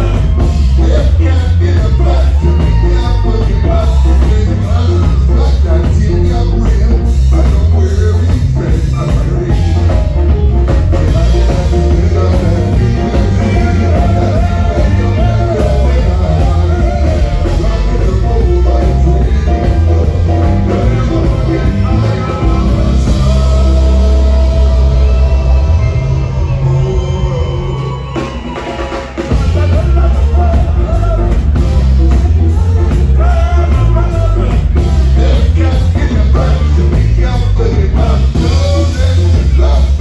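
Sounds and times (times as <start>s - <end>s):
horn section: 0.0s - 40.0s
people singing into microphones: 0.0s - 40.0s
ska band playing: 0.0s - 40.0s.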